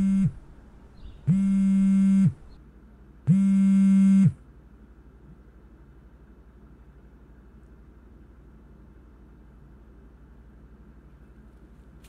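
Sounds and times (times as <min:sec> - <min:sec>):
phone buzzing on vibrate: 0:00.0 - 0:02.6, 0:03.3 - 0:04.4.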